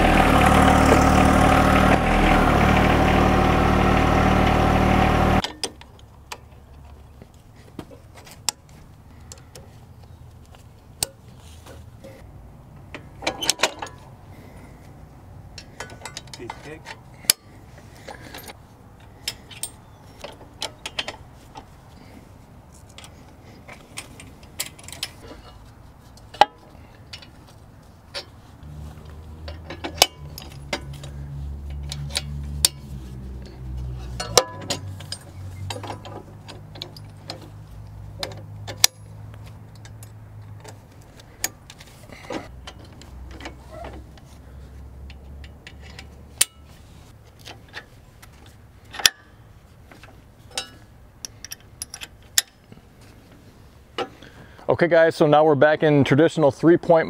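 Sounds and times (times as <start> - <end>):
metal clinks of hitch parts: 12.8 - 14.1, 15.5 - 21.8, 22.7 - 54.7.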